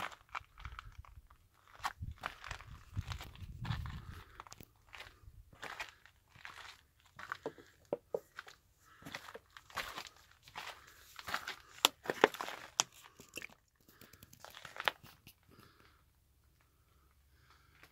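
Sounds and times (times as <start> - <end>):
footsteps crunching on gritty rock: 0.0 - 13.0.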